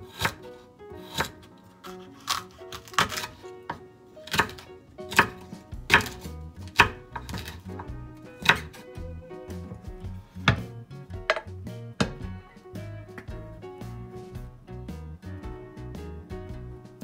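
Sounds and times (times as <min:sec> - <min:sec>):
background music: 0:00.0 - 0:17.0
knife chopping on cutting board: 0:00.1 - 0:00.4, 0:01.0 - 0:08.8, 0:10.3 - 0:10.7.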